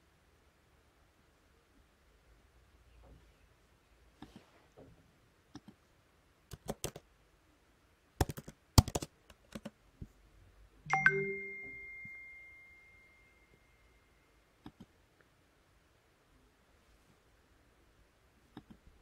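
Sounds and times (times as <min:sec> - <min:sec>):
keyboard keys clicking: 0:06.5 - 0:07.0, 0:08.2 - 0:09.8
bright ding: 0:10.9 - 0:13.8.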